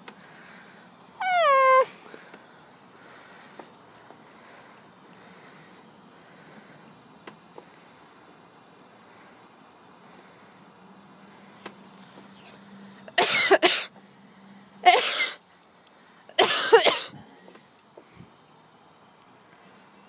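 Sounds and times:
person coughing: 13.1s - 13.9s, 14.9s - 15.4s, 16.4s - 17.2s.

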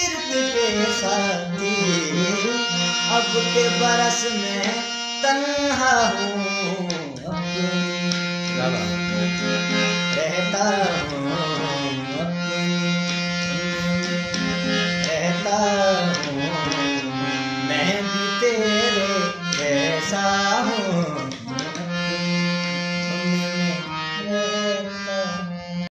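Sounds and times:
harmonium chords: 0.0s - 25.9s
man singing: 0.0s - 25.9s.

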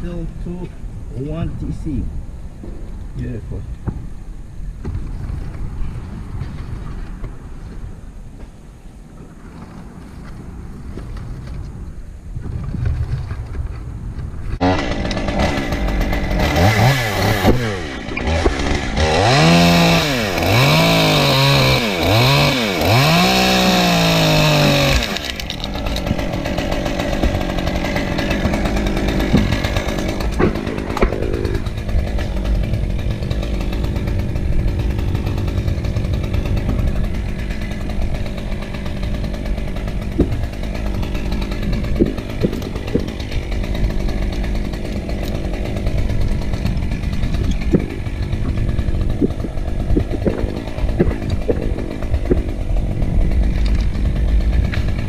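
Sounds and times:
chainsaw revving: 14.6s - 55.0s.

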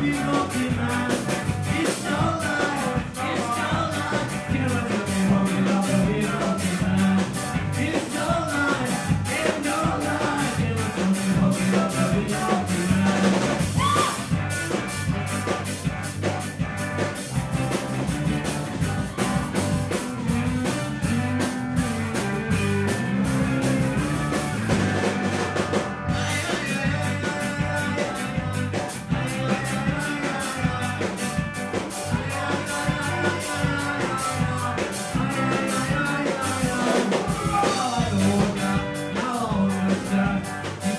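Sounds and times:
person singing: 0.0s - 14.4s, 26.1s - 40.9s
bass guitar: 0.0s - 40.9s
drum kit beat: 0.0s - 40.9s
electric guitars: 0.0s - 40.9s.

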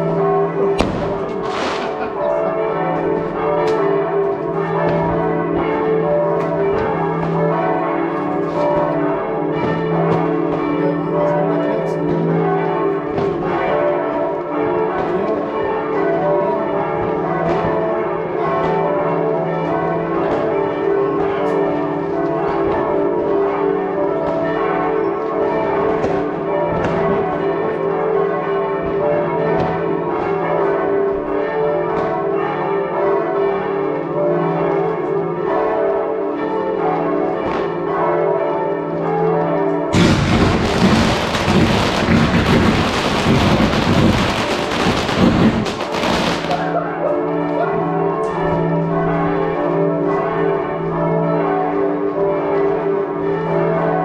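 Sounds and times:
church bells ringing: 0.0s - 54.0s
firework bangs: 0.8s - 2.1s, 39.9s - 46.8s.

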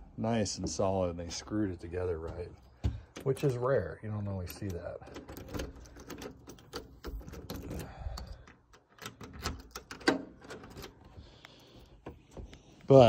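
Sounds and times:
footsteps on wooden deck boards: 0.5s - 3.4s.

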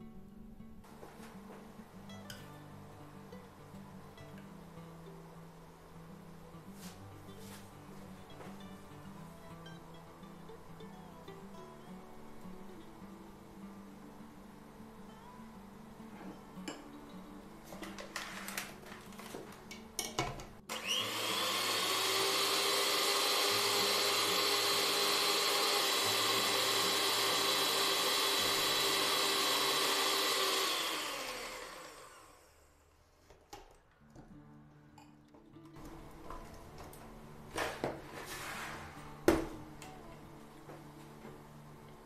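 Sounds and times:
electric hand mixer whining: 20.7s - 32.9s
spoon scraping plastic jug: 37.6s - 39.0s.

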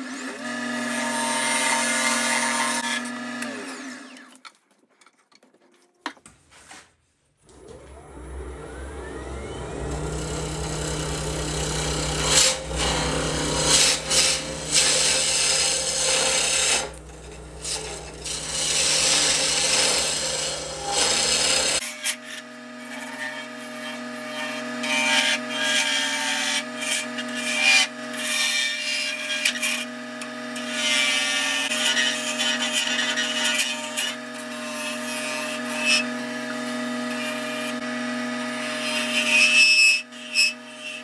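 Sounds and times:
lathe tool scraping wood: 0.0s - 4.4s, 7.5s - 41.0s
lathe humming: 7.5s - 21.8s.

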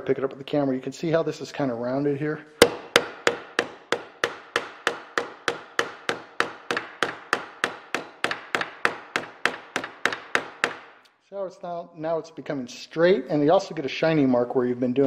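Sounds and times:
hammer striking sheet metal: 2.6s - 11.0s.

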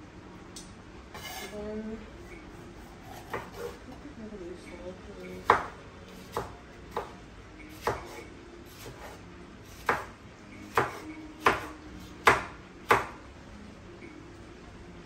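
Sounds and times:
knife chopping on cutting board: 3.1s - 3.8s, 5.4s - 13.2s.

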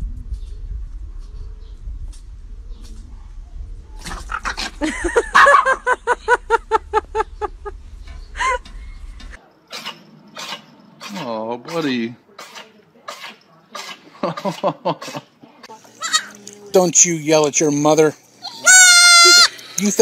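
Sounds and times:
dog yapping: 4.0s - 5.8s
dog yelp: 5.4s - 5.8s.

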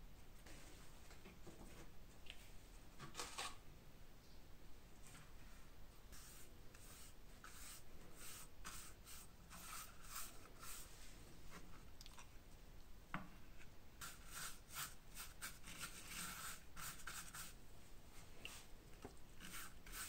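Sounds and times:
paintbrush swishing: 6.1s - 11.2s, 14.0s - 17.6s, 19.4s - 20.0s.

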